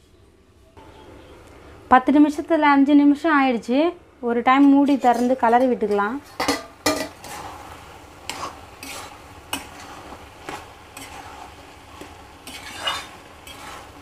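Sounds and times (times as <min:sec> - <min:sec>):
steady sizzle: 0:01.4 - 0:14.0
spatula scraping a pan: 0:04.8 - 0:14.0.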